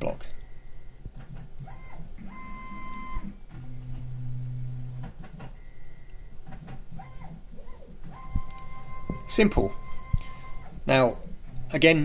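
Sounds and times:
stepper motor whine: 0:08.1 - 0:12.0.

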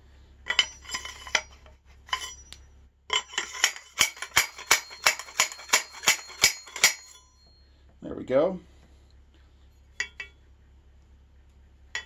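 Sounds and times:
loose metal clinks: 0:00.5 - 0:07.6, 0:09.9 - 0:10.4
metal-on-metal hammer taps: 0:02.1 - 0:07.2, 0:10.0 - 0:10.4.

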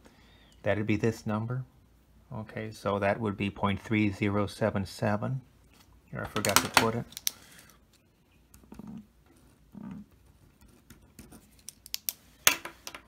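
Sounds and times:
marker pen scratching on paper: 0:08.6 - 0:11.6.

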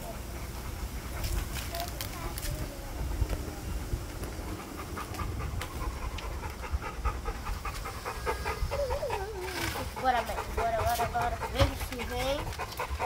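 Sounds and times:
puppy panting rapidly: 0:00.0 - 0:13.0
puppy whining: 0:07.4 - 0:13.0.

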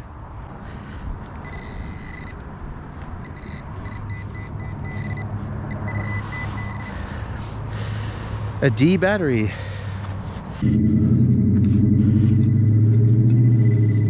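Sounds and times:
metal detector beeping: 0:01.4 - 0:02.4, 0:03.2 - 0:07.0, 0:10.6 - 0:14.0.

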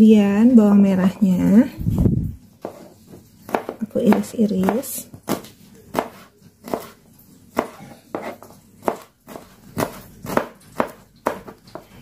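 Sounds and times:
knife chopping on plastic cutting board: 0:02.6 - 0:12.0.

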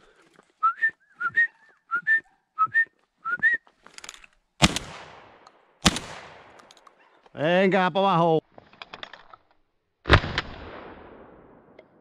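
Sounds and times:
short rising whistled notes: 0:00.6 - 0:03.6
shotgun shots with echo: 0:04.6 - 0:06.6.

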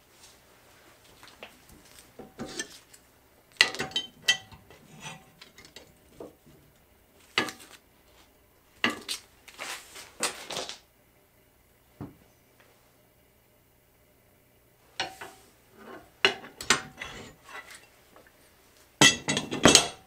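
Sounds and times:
wrenches clanking on metal: 0:03.6 - 0:06.3, 0:16.3 - 0:17.9.

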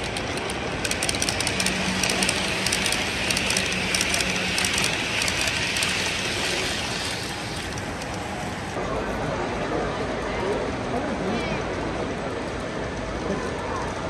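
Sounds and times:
model train wheels clicking: 0:00.0 - 0:08.8
steady hum: 0:00.0 - 0:09.2.

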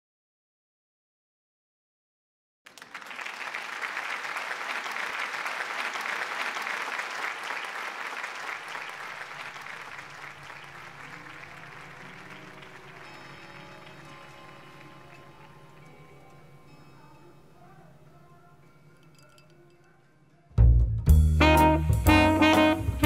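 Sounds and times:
audience applauding: 0:02.7 - 0:16.1.

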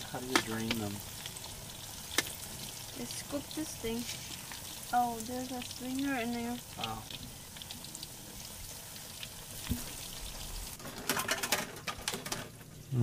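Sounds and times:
food sizzling in hot oil: 0:00.0 - 0:13.0
rapid clattering and rattling: 0:10.8 - 0:12.8.

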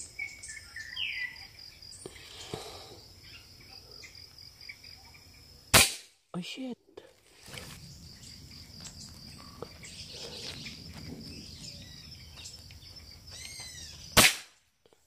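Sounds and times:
insects chirring: 0:00.0 - 0:14.9
air rifle shot crack: 0:05.7 - 0:06.2, 0:14.2 - 0:14.6
bird call: 0:13.3 - 0:14.1.

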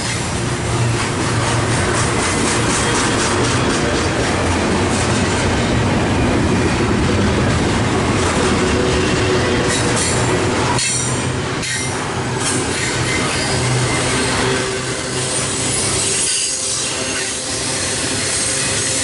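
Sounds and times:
train wheels rumbling on rails: 0:00.0 - 0:19.0
wheel squeal: 0:12.7 - 0:19.0.

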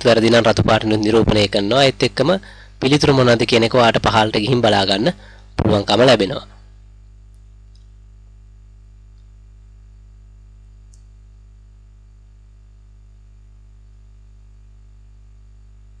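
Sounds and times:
low electrical hum: 0:00.0 - 0:16.0
faint clicks: 0:10.9 - 0:11.2.

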